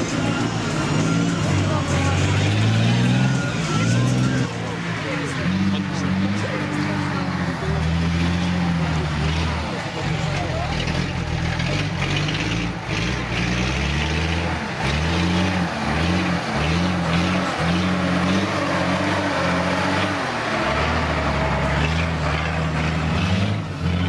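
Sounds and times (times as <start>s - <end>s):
truck engine revving: 0.0s - 24.0s.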